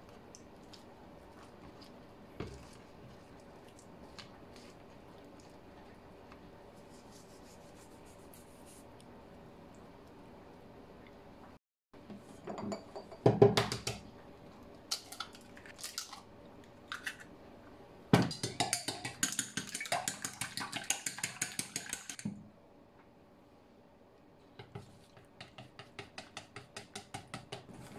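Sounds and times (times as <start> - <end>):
chopsticks beating eggs in bowl: 18.3 - 22.3, 24.6 - 27.8.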